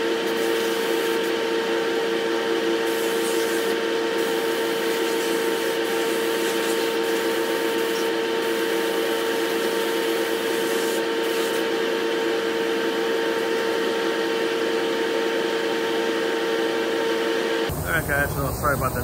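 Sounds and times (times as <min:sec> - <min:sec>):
exhaust fans rushing air: 0:13.8 - 0:19.0
constant hum: 0:17.6 - 0:19.0.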